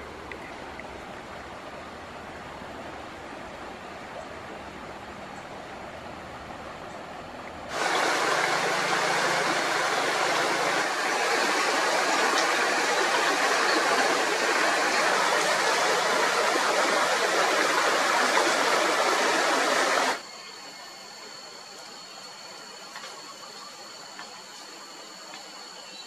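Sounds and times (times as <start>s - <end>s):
rushing water: 0.0s - 20.2s.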